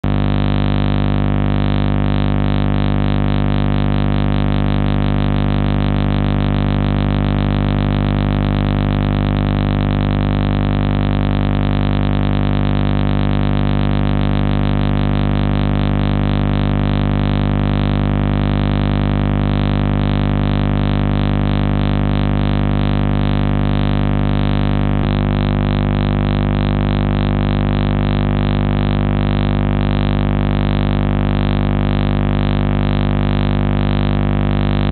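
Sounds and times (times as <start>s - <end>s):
loud electronic drone: 8.2s - 21.8s, 22.6s - 31.8s.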